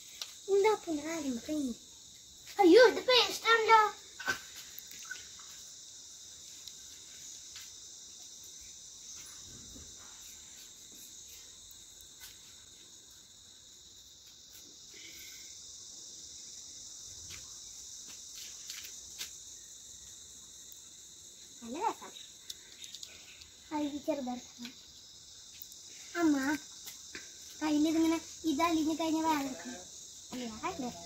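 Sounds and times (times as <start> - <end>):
insects chorus: 0.0 - 31.0
child's voice: 0.5 - 1.8, 2.6 - 4.0, 23.7 - 24.8, 26.2 - 26.6, 27.6 - 31.0.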